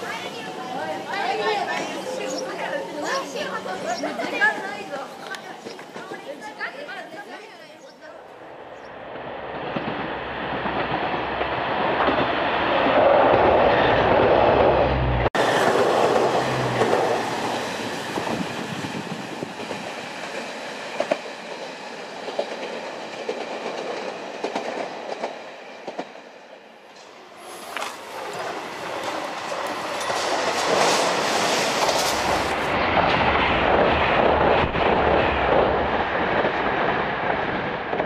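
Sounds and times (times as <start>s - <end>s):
train wheels clicking on rail joints: 4.2s - 6.4s, 15.3s - 26.2s, 26.9s - 36.5s
diesel railcar engine rumbling: 8.1s - 38.0s.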